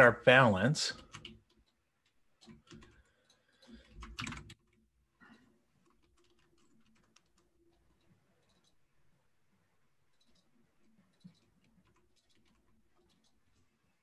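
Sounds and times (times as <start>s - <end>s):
computer keyboard typing: 0.9s - 4.8s, 5.8s - 8.8s, 11.1s - 13.6s.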